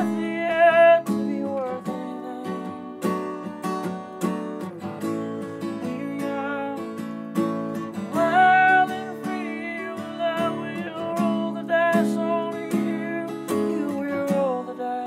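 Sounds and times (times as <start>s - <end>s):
man singing: 0.0s - 3.1s, 5.6s - 7.1s, 8.0s - 15.0s
acoustic guitar strumming: 0.0s - 15.0s.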